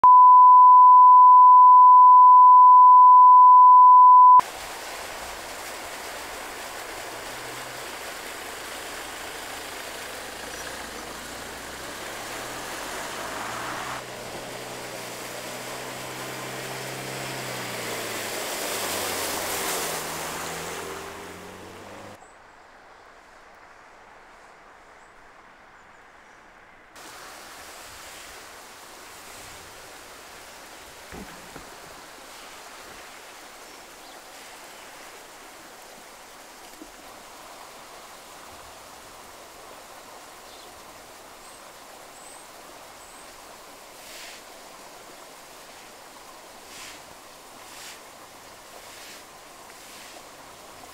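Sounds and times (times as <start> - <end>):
outdoor background: 0.0 - 50.9
water spray hissing: 4.4 - 22.2, 27.0 - 33.6, 43.9 - 50.9
car engine driving slowly: 4.7 - 22.2.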